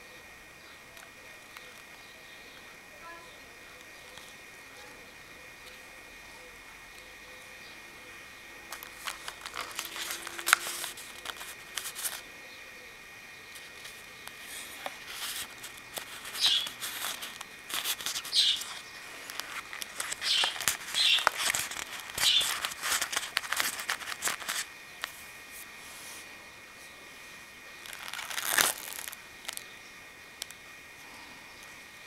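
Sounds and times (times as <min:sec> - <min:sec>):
card flaps rustling and crackling: 0:08.7 - 0:12.2, 0:13.5 - 0:26.2, 0:27.8 - 0:29.6.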